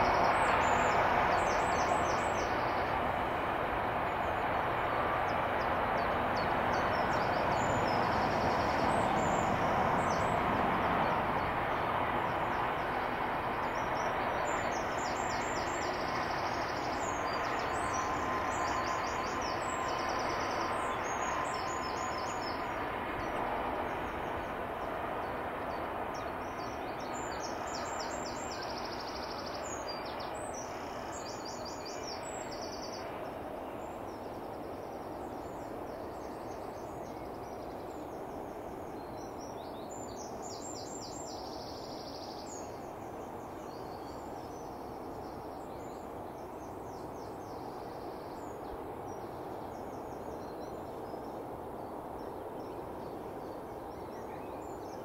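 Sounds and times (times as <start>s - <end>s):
distant freight train rumbling: 0.0s - 55.0s.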